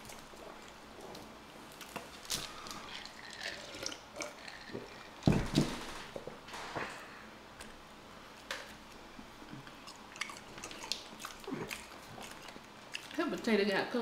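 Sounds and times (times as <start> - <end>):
soft wet chewing: 0.0 - 5.2, 8.9 - 13.5.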